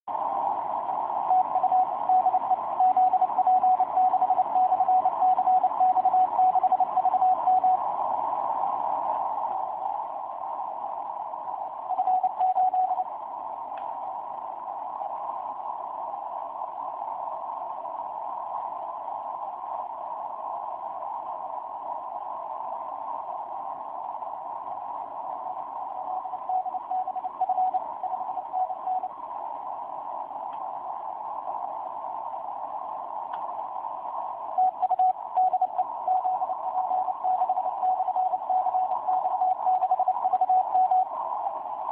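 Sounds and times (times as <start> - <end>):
radio receiver hiss: 0.1 - 41.9
morse code tone: 1.4 - 7.8.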